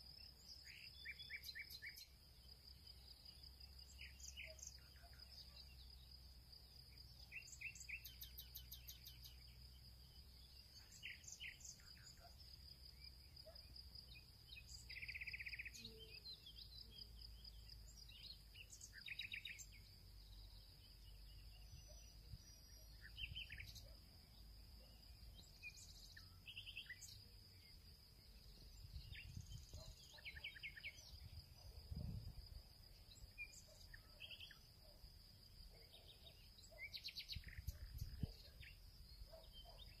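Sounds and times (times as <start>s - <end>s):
birds chirping: 13.4s - 31.8s, 35.7s - 40.0s.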